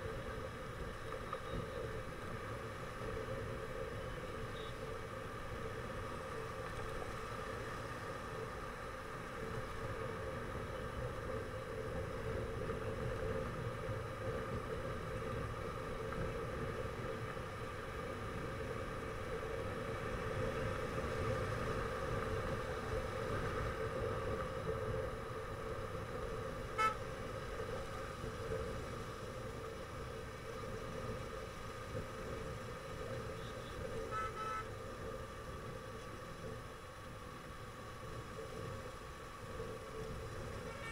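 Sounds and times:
road and engine noise: 0.0 - 40.9
vehicle horn toots: 26.8 - 27.0, 34.1 - 34.7, 40.7 - 40.9.

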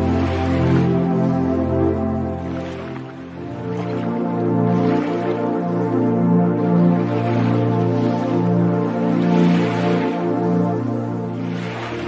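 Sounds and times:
background music of held chords: 0.0 - 12.0.

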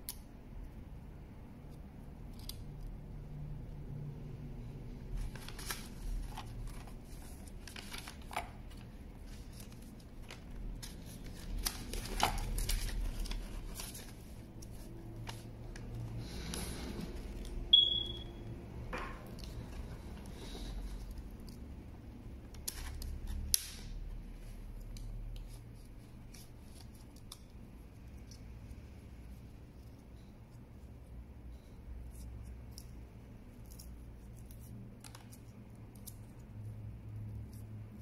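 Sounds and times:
paper rustling and crinkling: 5.0 - 17.7, 19.2 - 21.7, 22.3 - 28.4.

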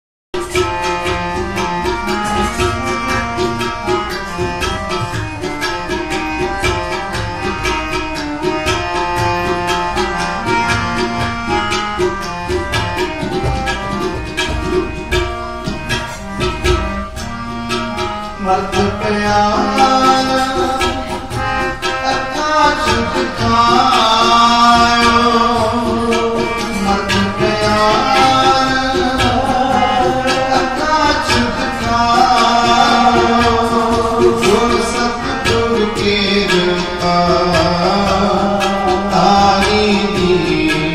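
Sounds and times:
harmonium melody: 0.4 - 40.9
percussion strokes: 0.4 - 40.9
man singing: 18.4 - 40.9.

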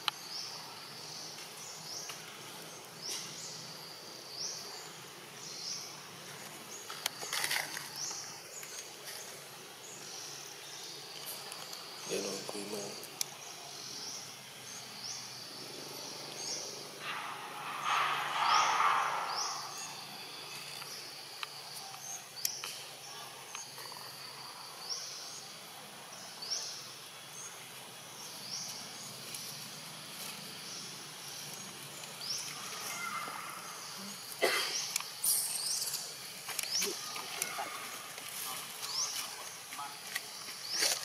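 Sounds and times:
loud noise: 16.9 - 20.8
sharp loud sounds: 16.9 - 21.1.

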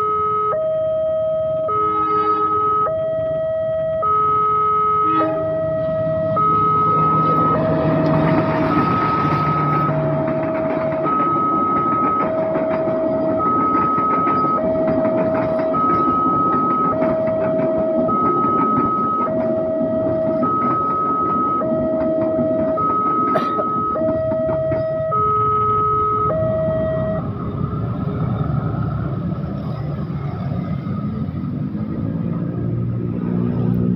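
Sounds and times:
road traffic: 0.0 - 33.9
motorcycle engines: 4.7 - 33.9
passing train rumble: 5.0 - 33.9
two-tone crossing signal chime: 5.1 - 27.4.

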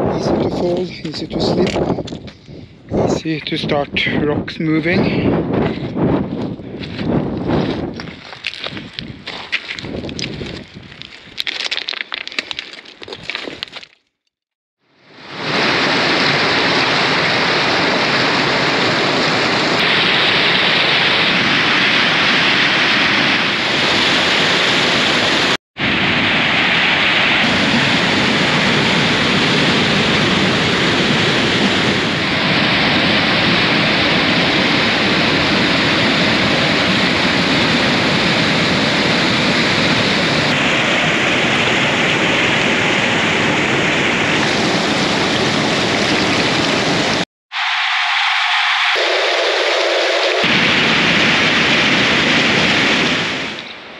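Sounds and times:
stream rushing over rocks: 35.3 - 47.2.

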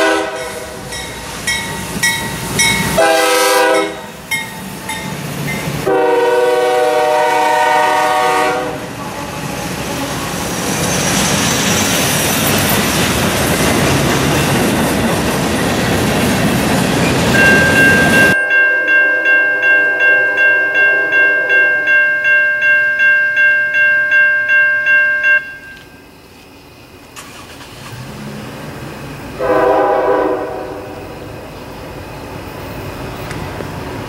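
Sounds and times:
locomotive air horn: 0.0 - 0.9, 3.0 - 4.2, 5.8 - 9.5, 29.4 - 31.1
railroad crossing bell ringing: 0.0 - 6.1, 17.1 - 26.2
freight cars clickety-clack: 11.3 - 18.4.

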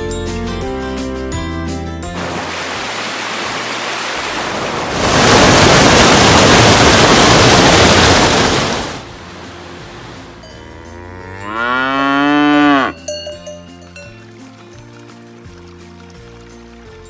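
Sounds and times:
stream rushing over rocks: 2.2 - 10.4.

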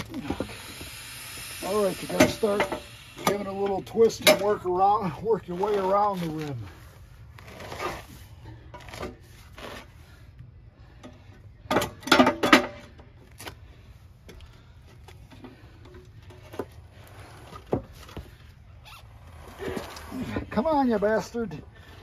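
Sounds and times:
low steady hum: 0.0 - 22.0
metal clanks and knocks: 11.0 - 13.0.

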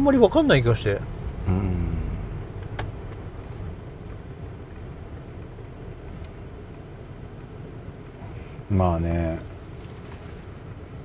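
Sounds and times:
car road rumble: 0.0 - 11.0
faint light ticks: 2.6 - 8.3, 9.3 - 11.0.

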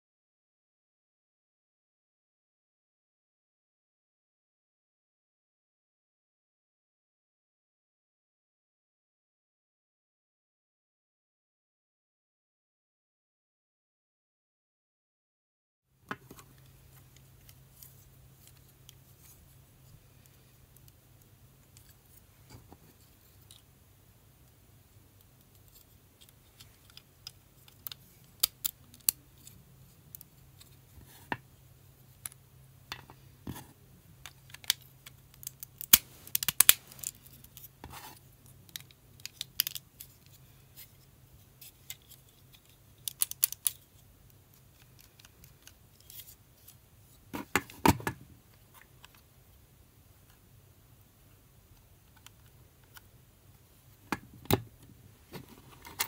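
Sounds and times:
plastic pieces clicking together: 34.2 - 37.7, 38.6 - 40.2, 41.7 - 44.0.

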